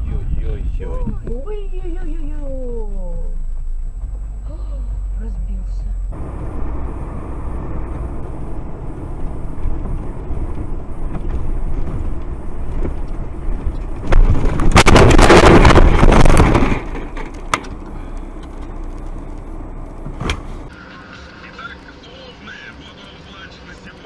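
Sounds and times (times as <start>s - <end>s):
car tyre and engine noise: 0.0s - 24.0s
vehicle collision crash: 6.2s - 19.0s
metal crunching and scraping: 7.5s - 20.7s.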